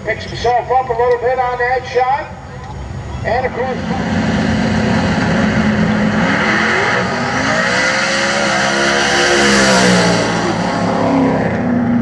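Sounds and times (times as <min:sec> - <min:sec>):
race car accelerating hard: 0:03.5 - 0:12.0.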